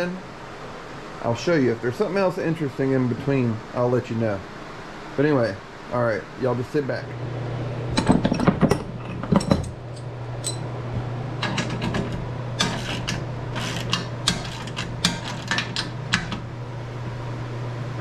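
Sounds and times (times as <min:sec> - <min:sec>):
low hum: 0:00.0 - 0:18.0
wrenches clattering: 0:08.0 - 0:10.6, 0:11.4 - 0:16.4.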